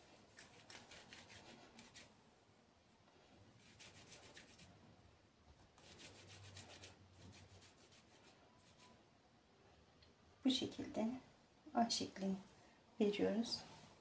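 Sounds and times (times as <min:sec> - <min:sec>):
palms rubbing dough: 0:00.0 - 0:02.2, 0:05.6 - 0:09.0.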